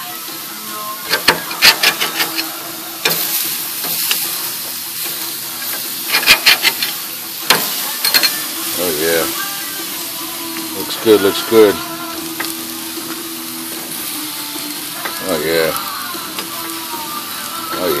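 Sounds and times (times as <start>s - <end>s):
burger patties sizzling on a grill: 0.0s - 18.0s
metal spatula scraping a grate: 1.0s - 9.5s.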